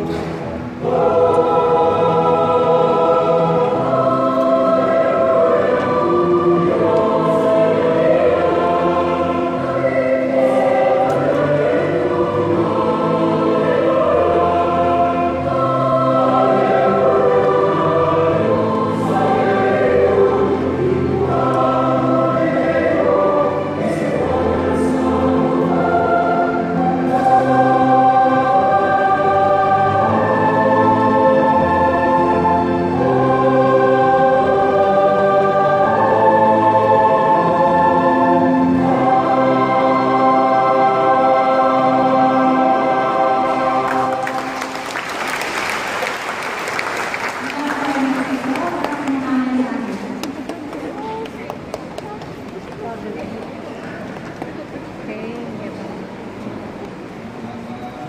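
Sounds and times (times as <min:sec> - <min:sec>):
group singing worship song: 0:00.0 - 0:46.4
musical accompaniment: 0:00.0 - 0:47.8.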